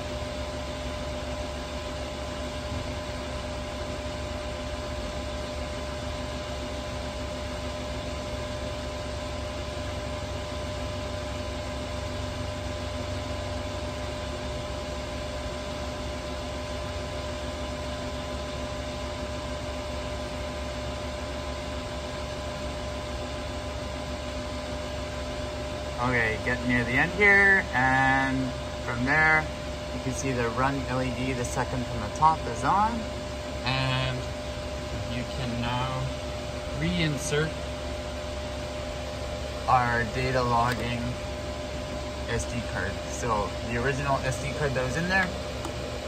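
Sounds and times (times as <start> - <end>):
machinery whine: 24.3 - 46.0.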